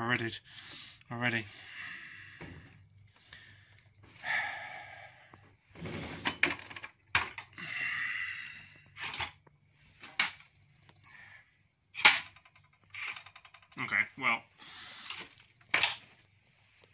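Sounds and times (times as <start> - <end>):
metal parts clicking and clattering: 6.2 - 7.6, 9.0 - 9.4, 10.0 - 11.0, 12.0 - 13.9, 15.0 - 16.2.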